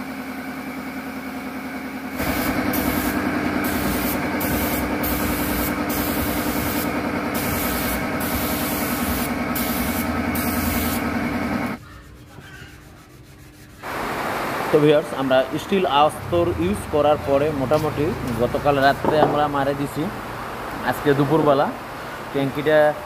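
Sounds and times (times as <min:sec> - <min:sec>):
air compressor humming: 0:00.0 - 0:11.8
spray gun air hissing: 0:02.2 - 0:11.8.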